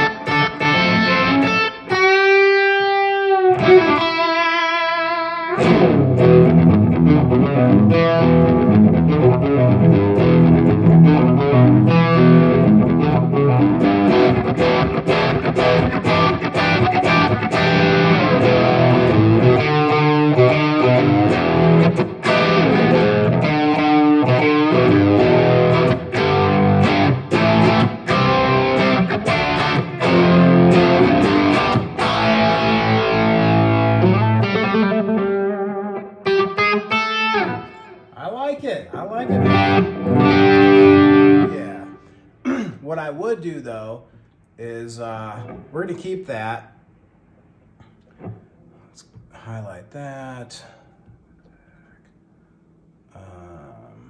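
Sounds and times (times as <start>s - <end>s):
overdriven electric guitar: 0.0s - 38.1s, 39.0s - 42.2s.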